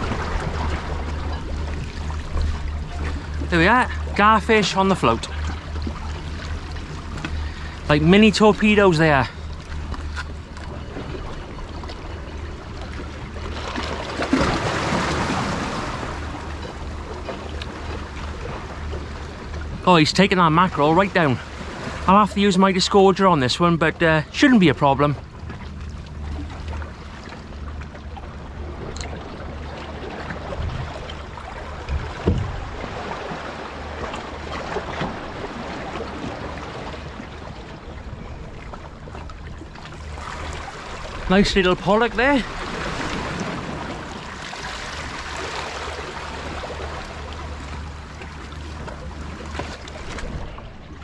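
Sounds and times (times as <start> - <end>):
wind rumble on microphone: 0.0 - 4.2, 28.1 - 51.0
sea water washing against rocks: 0.0 - 10.2, 13.4 - 16.4, 38.7 - 51.0
dull knocks: 31.9 - 32.8.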